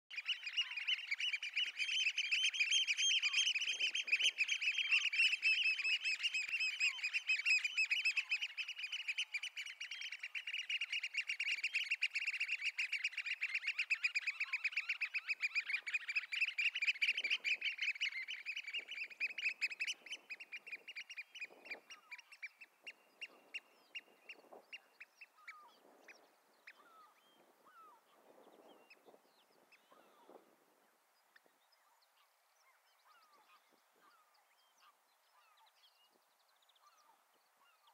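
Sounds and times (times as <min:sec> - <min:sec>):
oystercatchers piping: 0:00.1 - 0:30.4.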